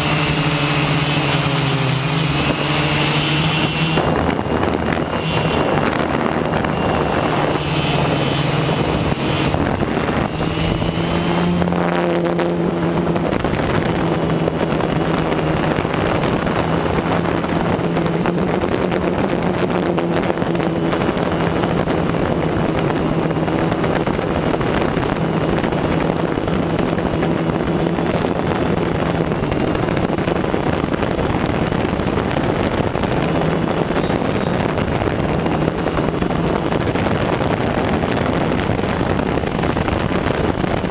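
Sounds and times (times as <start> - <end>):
rush of air: 0.0 - 22.9
drone motors buzzing: 0.0 - 30.5, 32.4 - 40.9.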